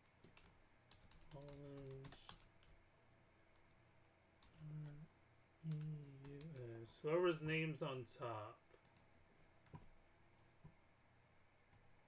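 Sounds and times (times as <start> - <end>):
computer keyboard clicks: 0.2 - 2.7, 8.8 - 9.1.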